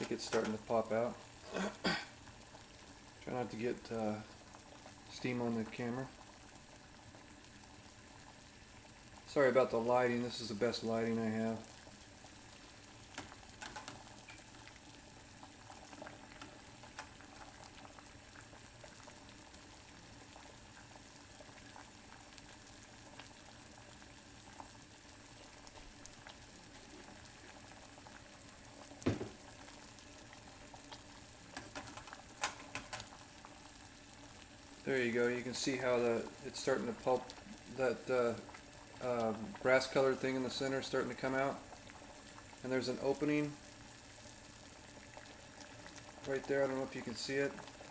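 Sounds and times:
water boiling in saucepan: 0.0 - 47.9
knock: 29.0 - 29.4.

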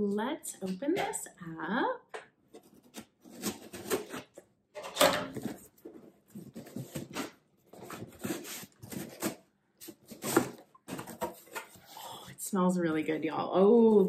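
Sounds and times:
cardboard flaps scraping and rustling: 5.3 - 11.9.

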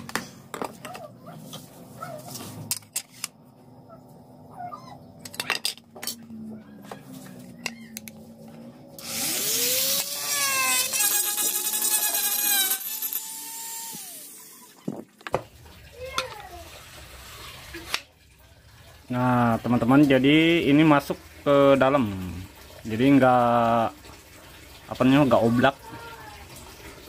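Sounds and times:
rotary tool whining and cutting: 9.0 - 14.8.

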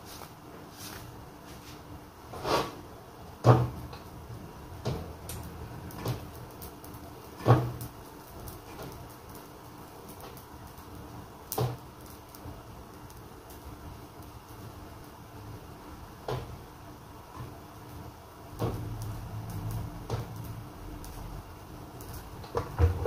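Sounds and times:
faint room hum: 0.0 - 23.0
kitchen knocks and clatters: 22.5 - 23.0.

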